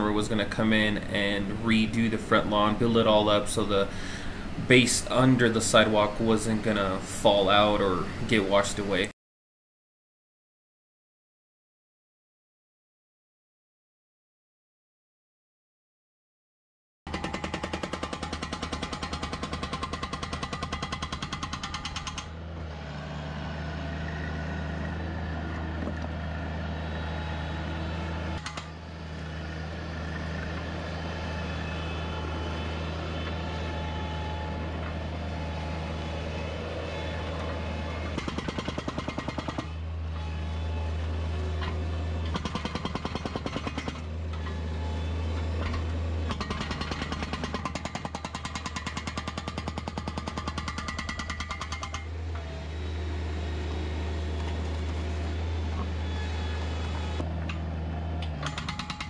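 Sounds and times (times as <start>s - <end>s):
loader engine running: 0.0s - 9.0s, 21.7s - 47.6s, 51.4s - 59.0s
hydraulic breaker hammering concrete: 17.1s - 22.4s, 28.4s - 28.8s, 37.4s - 40.3s, 41.6s - 44.8s, 45.4s - 52.5s, 58.2s - 59.0s.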